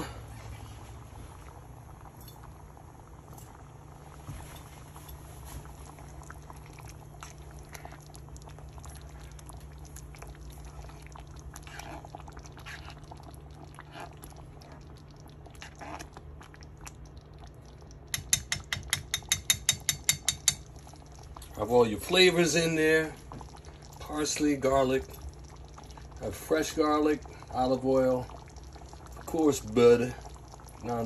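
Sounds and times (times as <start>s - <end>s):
soup bubbling and popping: 0.0s - 31.0s
spoon knocking a pan: 18.1s - 20.7s.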